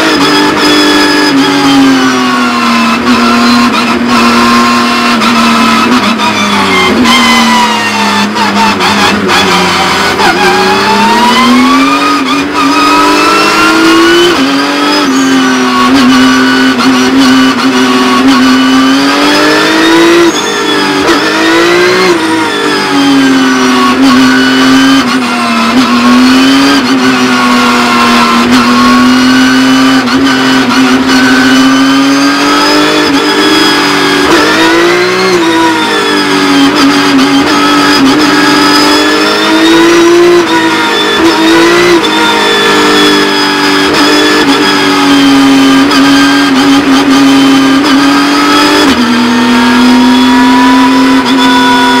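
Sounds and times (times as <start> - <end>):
race car engine accelerating: 0.0 - 52.0.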